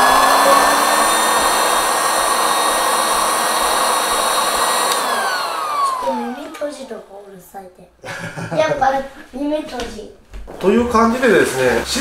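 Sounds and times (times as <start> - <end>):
electric air pump motor whine: 0.0 - 7.2.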